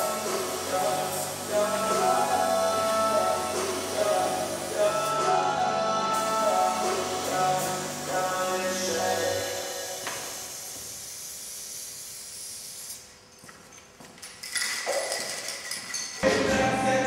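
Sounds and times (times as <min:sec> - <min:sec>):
loud music: 0:00.0 - 0:09.6, 0:16.2 - 0:17.0
aerosol spray can hissing: 0:00.0 - 0:13.0.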